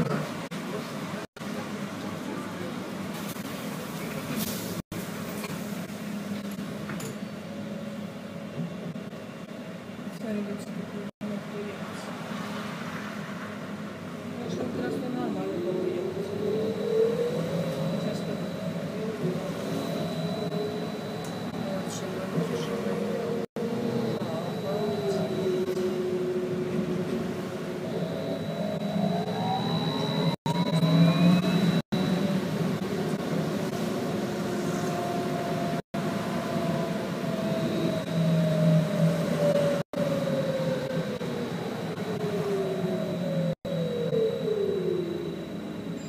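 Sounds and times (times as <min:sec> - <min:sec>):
trolleybus running rumble: 0:00.0 - 0:44.3
faint high whine: 0:14.3 - 0:46.0
faint high steady tone: 0:14.4 - 0:26.8, 0:27.8 - 0:33.6.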